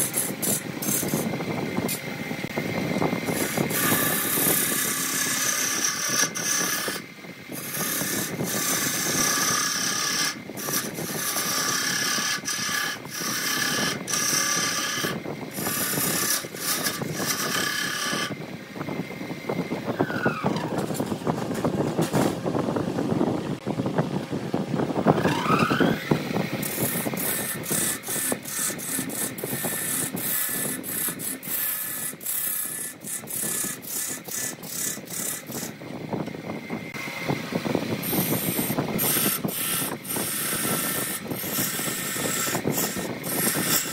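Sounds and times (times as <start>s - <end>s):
wood lathe running: 0.0s - 1.3s, 2.2s - 18.4s, 25.1s - 35.8s, 37.0s - 43.9s
chisel scraping wood: 3.3s - 7.0s, 7.6s - 18.4s, 26.6s - 35.7s, 38.1s - 43.9s.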